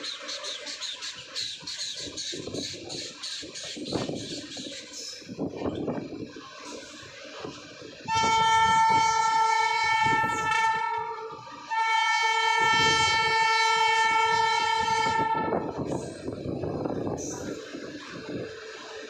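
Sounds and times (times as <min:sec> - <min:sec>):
wheels rattling over rail joints: 0:00.0 - 0:19.0
train horn blasts: 0:08.0 - 0:15.8.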